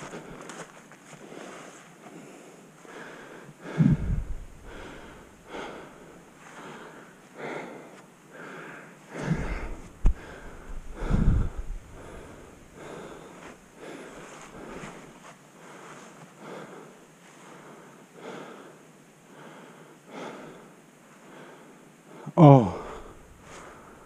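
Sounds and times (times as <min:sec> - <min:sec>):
heavy breathing: 0:00.0 - 0:24.0
low rumbles: 0:03.7 - 0:05.3, 0:09.2 - 0:12.7.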